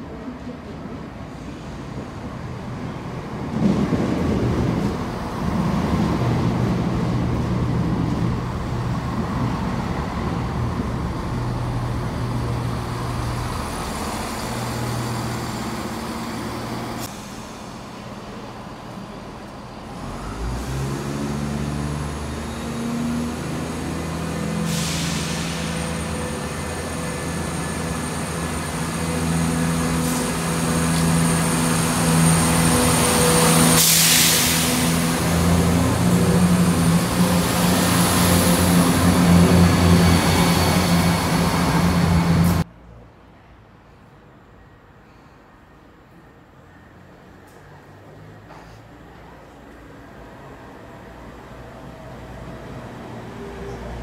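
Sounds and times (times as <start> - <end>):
diesel train engines humming: 0.0 - 42.7
train braking: 22.2 - 42.6
short hiss of air: 24.6 - 25.9, 33.7 - 35.0.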